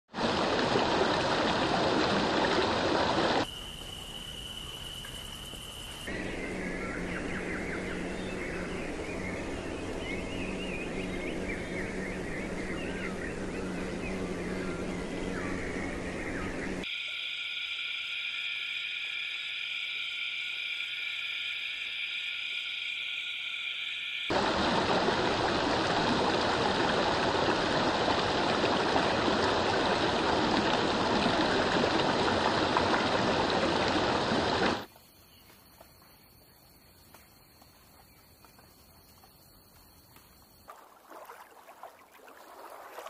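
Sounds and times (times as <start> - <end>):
running water rushing: 0.1 - 3.5, 24.3 - 34.9, 40.7 - 43.0
high droning hum: 6.1 - 34.9.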